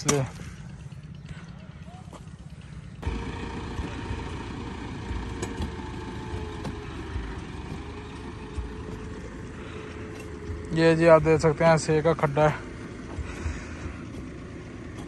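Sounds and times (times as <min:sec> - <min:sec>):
tractor engine running: 0:00.0 - 0:15.0.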